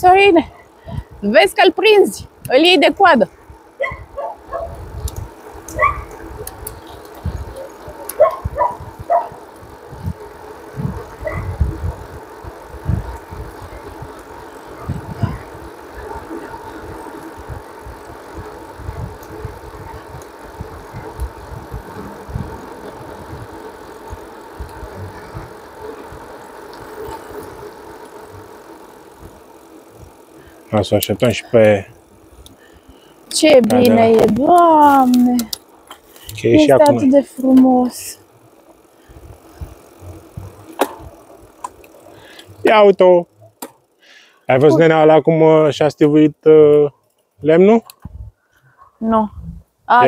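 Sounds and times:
bicycle rolling hum: 0.0s - 50.0s
wind buffeting microphone: 3.8s - 7.6s, 8.2s - 14.2s, 14.8s - 23.6s.

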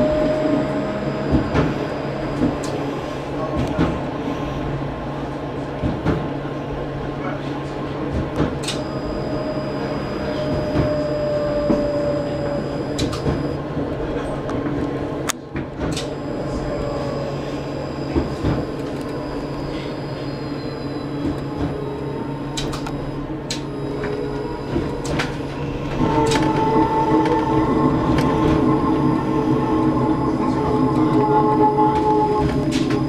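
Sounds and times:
loud whine: 0.0s - 3.8s, 8.6s - 13.6s, 16.0s - 33.0s
tram motor hum: 0.0s - 33.0s.

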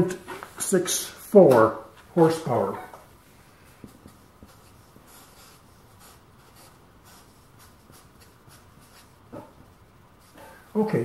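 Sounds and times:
marker scratching on paper: 3.6s - 9.5s.

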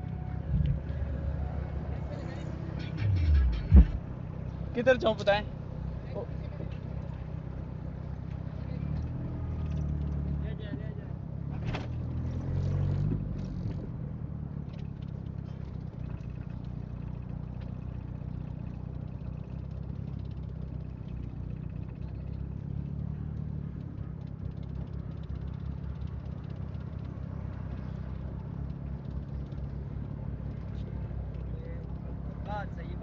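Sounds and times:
car engine idling: 0.0s - 33.0s.

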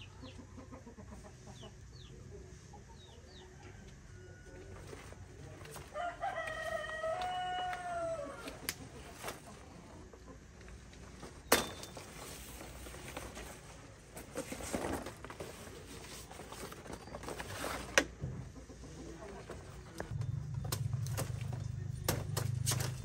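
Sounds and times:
rooster crowing: 5.8s - 8.6s.

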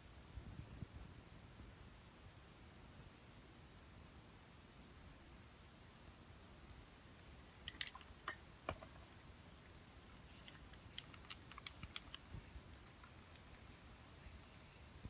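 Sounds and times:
spray paint hissing: 10.2s - 15.0s
spray can clicks: 10.3s - 15.0s.

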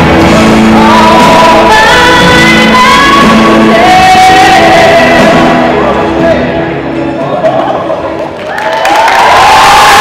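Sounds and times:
steady musical accompaniment: 0.0s - 10.0s
person singing long notes: 0.7s - 6.0s.

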